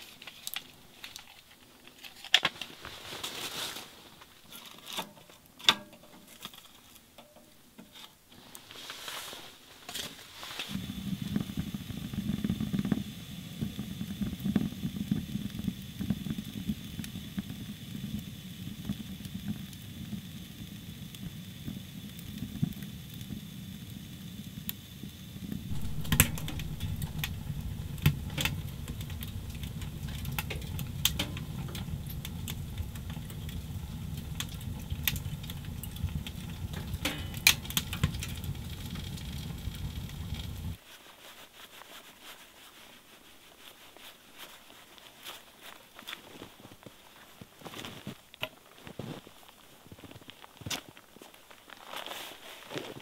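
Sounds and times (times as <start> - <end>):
fire crackling and popping: 0.0 - 4.6, 10.1 - 40.8, 45.0 - 52.4
fire flames rushing: 13.6 - 40.8.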